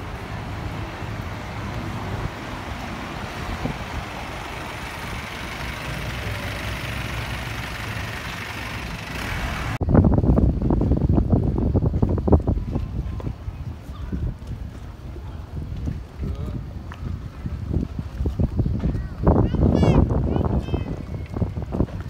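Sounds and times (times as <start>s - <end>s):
road traffic going by: 0.0s - 10.0s
wind buffeting microphone: 0.0s - 22.0s.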